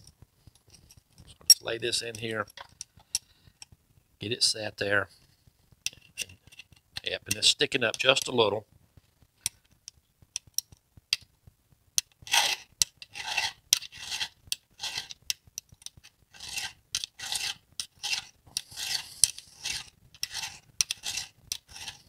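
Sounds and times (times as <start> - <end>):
file rasping on saw chain: 12.3 - 15.2, 16.3 - 22.0.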